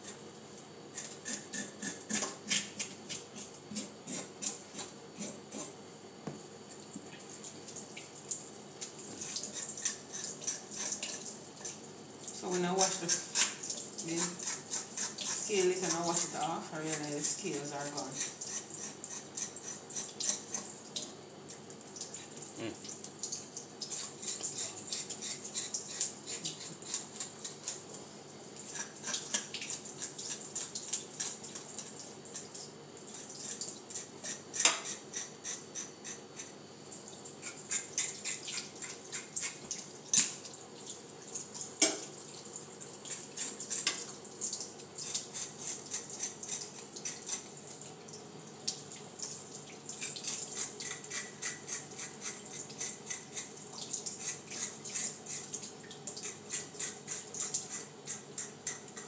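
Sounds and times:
fork scraping fish scales: 0.9 - 5.8, 9.1 - 11.8, 12.8 - 20.7, 23.9 - 27.9, 28.6 - 32.5, 33.1 - 36.5, 37.4 - 40.3, 43.0 - 44.1, 45.0 - 47.5, 50.0 - 55.6, 56.2 - 59.0.

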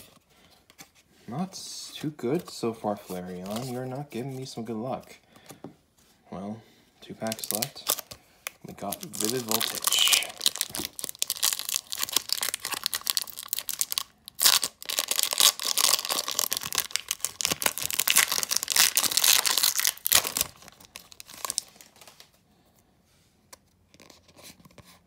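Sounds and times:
foil wrapper tearing and crinkling: 7.2 - 8.2, 8.8 - 22.2.

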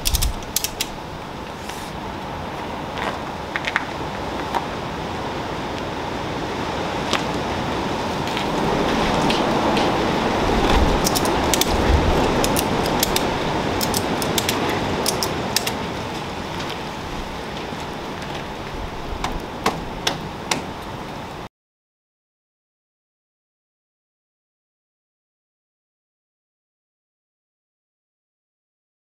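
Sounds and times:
wind rushing over microphone: 0.0 - 21.5.

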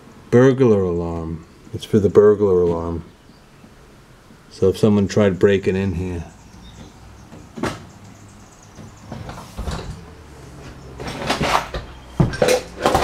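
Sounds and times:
knocks and bumps: 6.7 - 8.1, 8.7 - 13.0.

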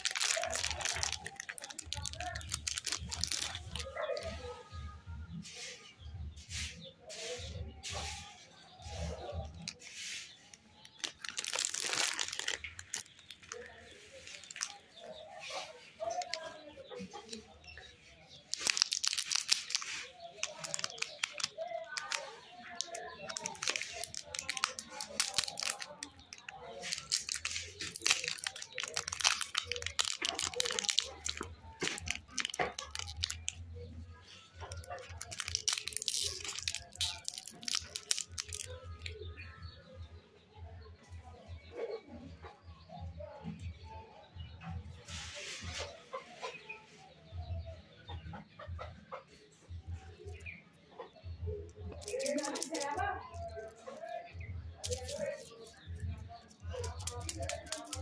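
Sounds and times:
candy wrappers crinkling: 0.0 - 4.6, 8.9 - 16.6, 17.3 - 39.6, 51.7 - 58.0.

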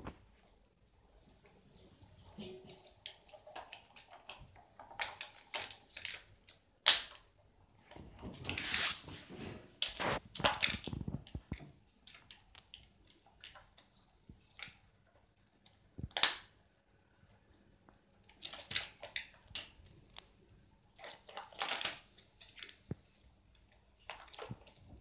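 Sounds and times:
plastic toys clicking and clattering: 1.4 - 7.4, 9.8 - 16.7, 17.3 - 20.3, 20.9 - 22.9, 23.5 - 25.0.

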